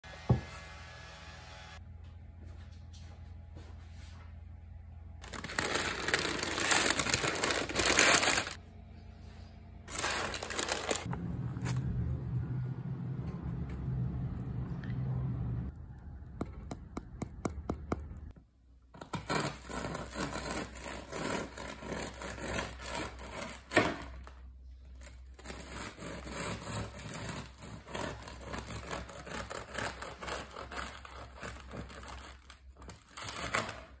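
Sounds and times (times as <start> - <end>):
sharp crack of crust: 5.2 - 8.6
fingertips tapping bread crust: 16.4 - 18.3
bread knife sawing through crust: 19.2 - 23.8, 25.4 - 32.5.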